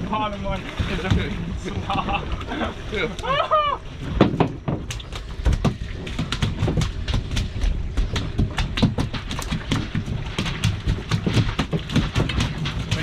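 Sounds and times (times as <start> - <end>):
fish slapping on deck: 4.1 - 13.0.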